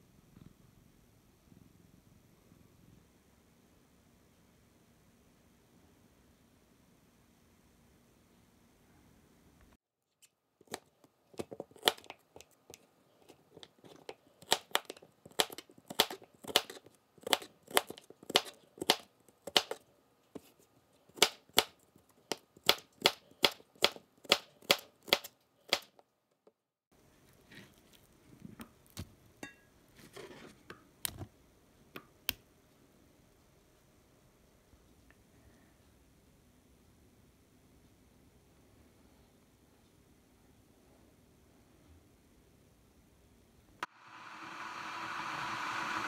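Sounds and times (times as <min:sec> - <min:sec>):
knife chopping on plastic board: 0:14.4 - 0:19.8.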